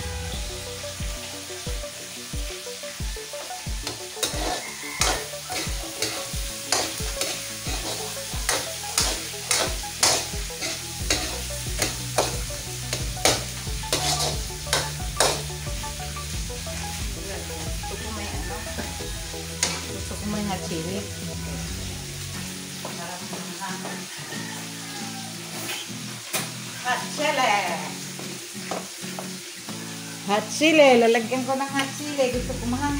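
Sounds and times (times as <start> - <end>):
food sizzling in a pan: 0.0 - 32.9
spatula scraping a pan: 3.8 - 15.6, 18.7 - 20.1.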